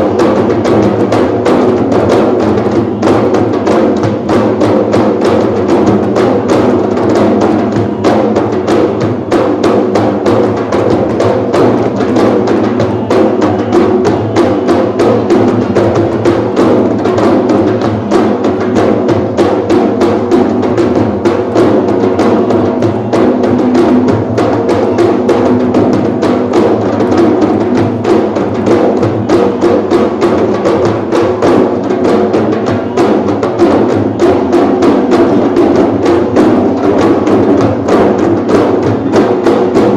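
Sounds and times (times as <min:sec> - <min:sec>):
frame drums playing fast rhythm: 0:00.0 - 0:39.9.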